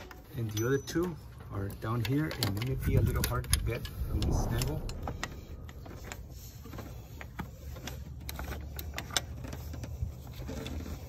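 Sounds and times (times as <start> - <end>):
steady low hum: 3.8 - 6.8.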